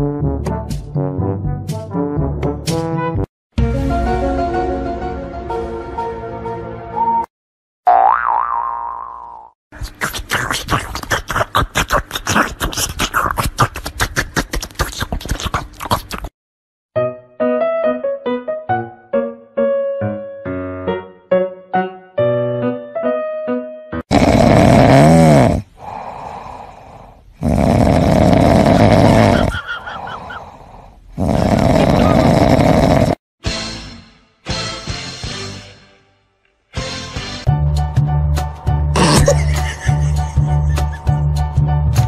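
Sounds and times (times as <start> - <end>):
loud snoring: 24.1 - 33.2.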